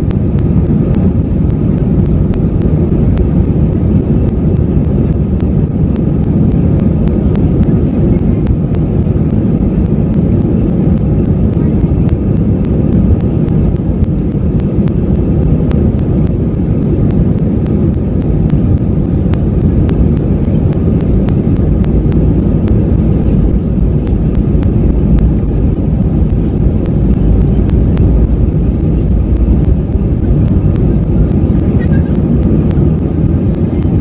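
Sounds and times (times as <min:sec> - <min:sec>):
jet engines and runway rumble: 0:00.0 - 0:34.0.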